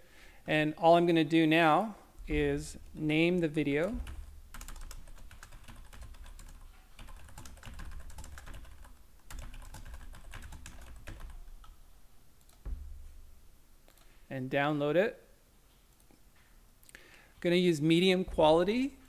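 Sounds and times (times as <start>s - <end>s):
keyboard typing: 3.3s - 11.8s.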